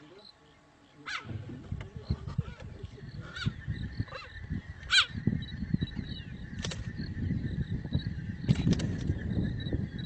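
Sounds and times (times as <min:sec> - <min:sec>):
cheetah chirping: 0:02.0 - 0:08.5.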